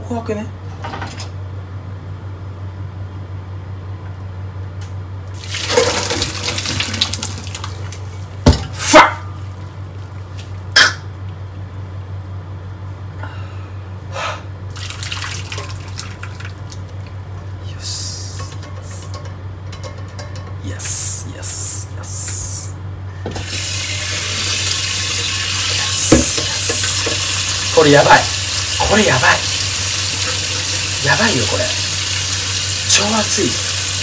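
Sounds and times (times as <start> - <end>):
steady low hum: 7.7 - 14.8, 15.9 - 34.0
hissing water rushes: 23.5 - 34.0.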